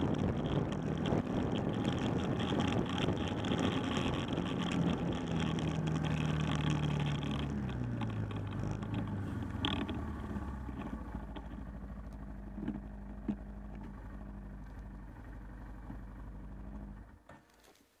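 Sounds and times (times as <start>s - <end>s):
wind on microphone: 0.0s - 5.7s
atv engine slowing and idling: 0.0s - 17.8s.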